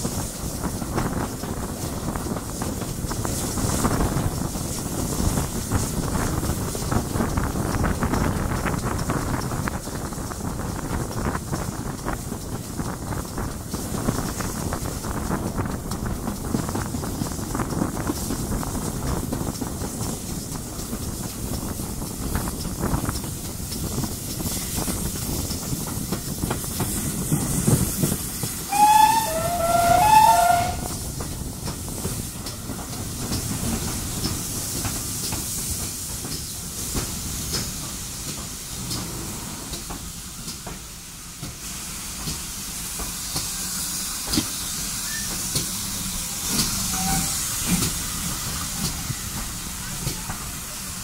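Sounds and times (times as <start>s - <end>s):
locomotive rumble and hiss: 0.0s - 51.0s
locomotive whistle blasts: 28.6s - 31.0s, 46.8s - 47.4s.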